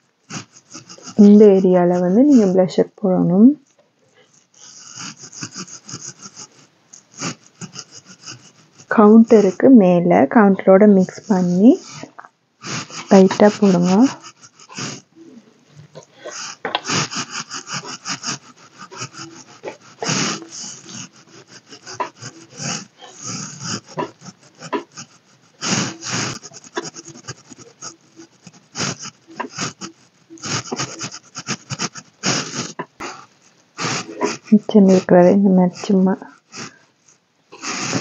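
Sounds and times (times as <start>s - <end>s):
makeup brush strokes: 12.9s - 36.8s.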